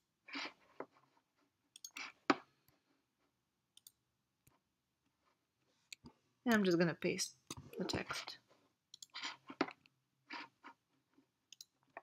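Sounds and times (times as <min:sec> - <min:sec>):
mouse and keyboard clicks: 0:01.8 - 0:02.2, 0:08.9 - 0:09.8, 0:11.5 - 0:11.8.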